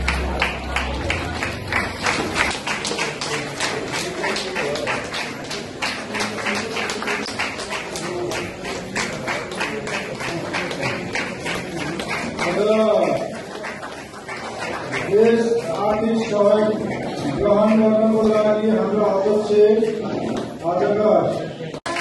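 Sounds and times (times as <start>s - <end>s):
crowd clapping in rhythm: 0.0s - 20.6s, 21.8s - 22.0s.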